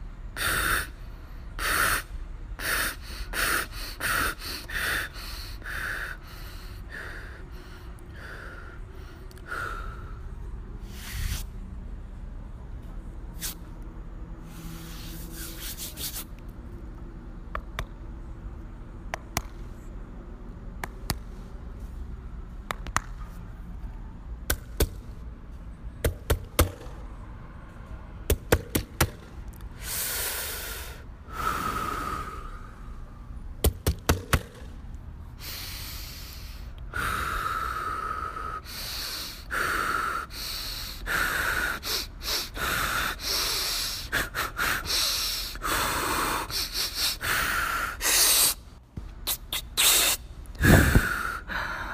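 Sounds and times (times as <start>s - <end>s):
heavy breaths and gasps: 35.4s - 48.6s, 49.8s - 51.9s.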